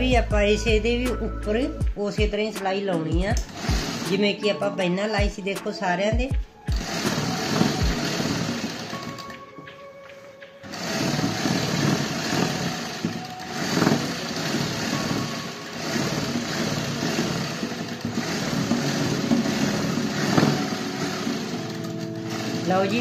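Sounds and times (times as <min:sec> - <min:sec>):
sewing machine running: 0:03.4 - 0:04.4, 0:06.7 - 0:09.4, 0:10.6 - 0:23.0.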